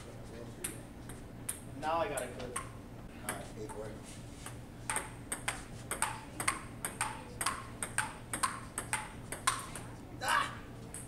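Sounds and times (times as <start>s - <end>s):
faint steady hum: 0.0s - 11.0s
table tennis ball clicking: 4.9s - 9.9s.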